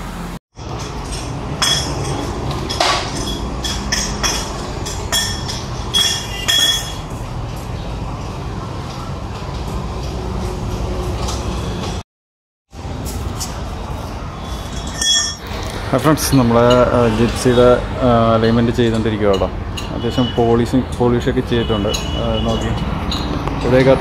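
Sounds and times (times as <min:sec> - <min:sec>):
sharp metallic clinks: 0:00.6 - 0:07.1, 0:14.5 - 0:15.4.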